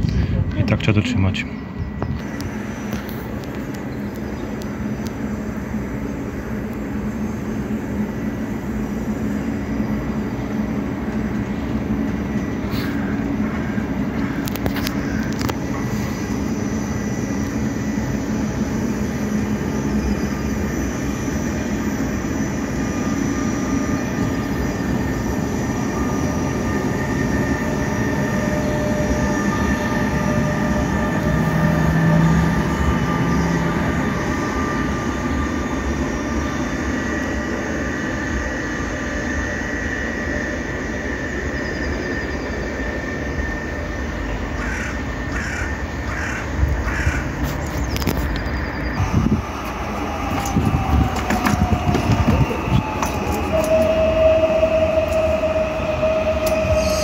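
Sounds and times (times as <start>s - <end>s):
locomotive low hum: 0.0s - 57.0s
train wheels rumbling on rail: 0.0s - 57.0s
high whining tones: 1.1s - 57.0s.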